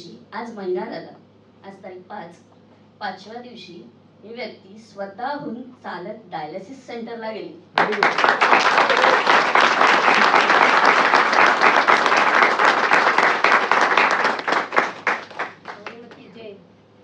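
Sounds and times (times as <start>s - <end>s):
audience applauding: 7.8s - 16.3s.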